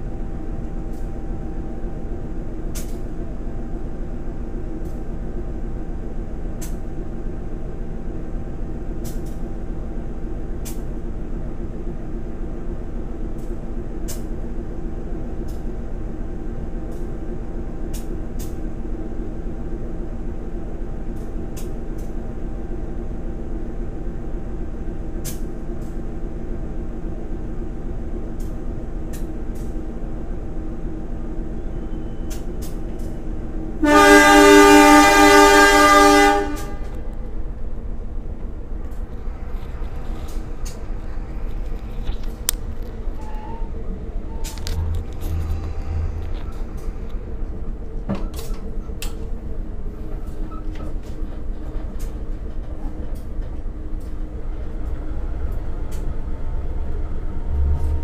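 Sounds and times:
diesel train engine idling: 0.0 - 58.0.

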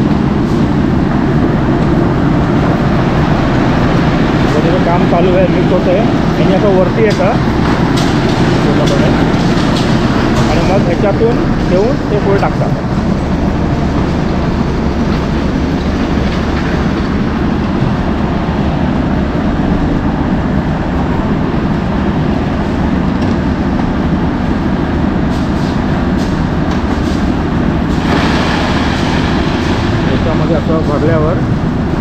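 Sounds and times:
concrete mixer rumbling: 0.0 - 32.0
wet concrete sliding out: 27.9 - 30.7.

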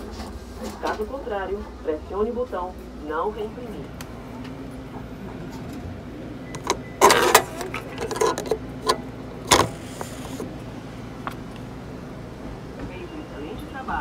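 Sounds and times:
low machine hum: 0.0 - 14.0
paper and plastic rustling: 7.0 - 8.6.

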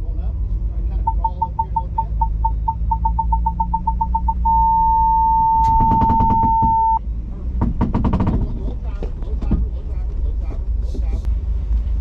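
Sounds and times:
car engine running: 0.1 - 12.0
parking sensor beeping: 1.0 - 7.0.

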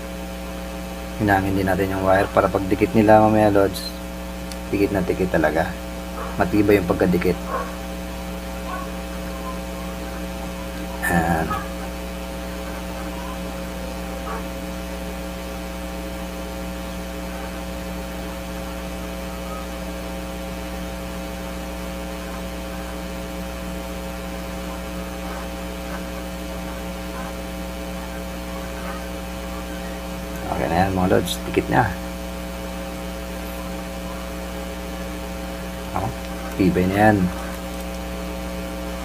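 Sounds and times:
electrical mains hum: 0.0 - 39.0.

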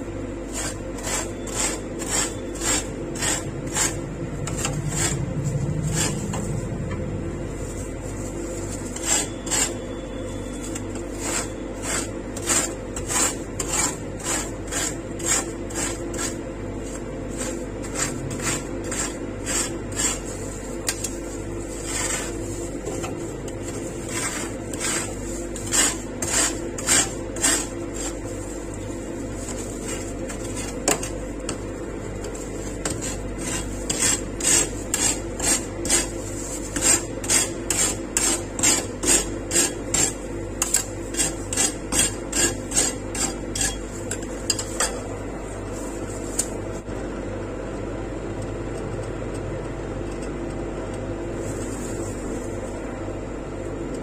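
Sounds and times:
steady hum: 0.0 - 54.0
metal spatulas scraping cold plate: 0.5 - 6.5, 8.8 - 31.6, 32.3 - 45.0.

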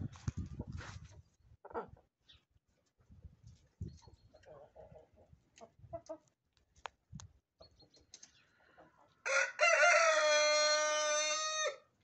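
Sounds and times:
rooster crowing: 9.2 - 11.9.

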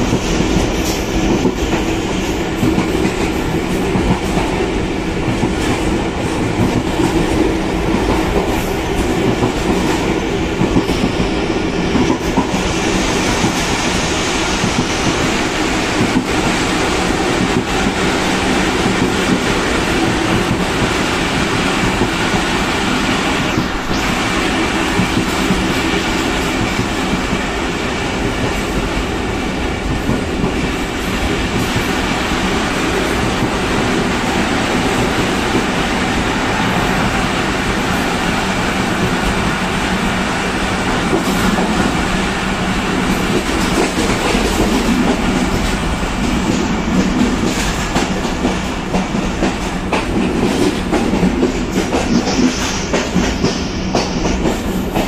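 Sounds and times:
diesel locomotive engine drone: 0.0 - 55.0.

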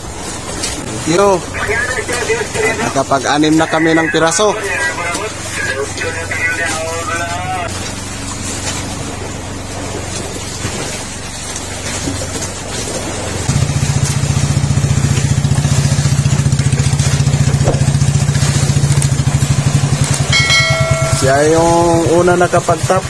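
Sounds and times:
boat engine humming: 0.0 - 23.0
chugging engine note: 13.1 - 23.0.

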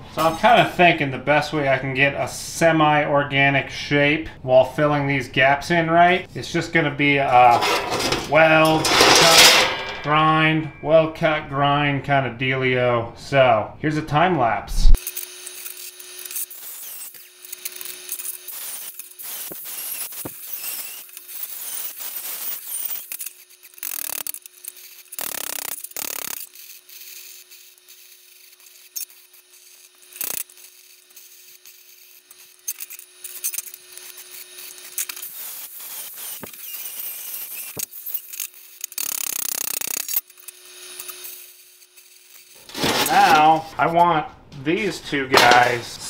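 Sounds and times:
angle grinder on steel: 7.3 - 11.0, 15.0 - 43.7
welding: 14.9 - 43.6.

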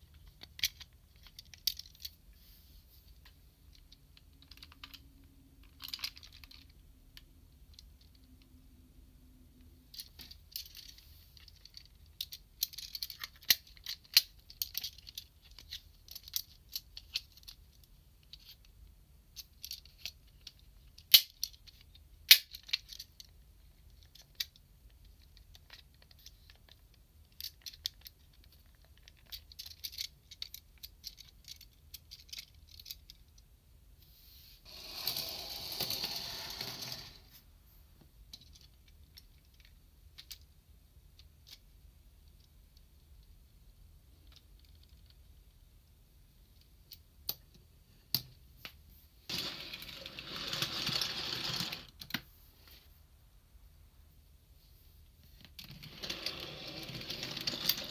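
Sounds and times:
plastic toy parts clicking: 0.1 - 2.2, 9.9 - 18.7, 19.4 - 33.4.

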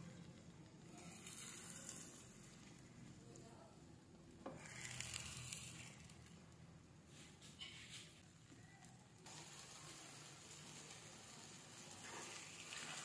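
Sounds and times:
food sizzling in oil: 9.2 - 13.0.

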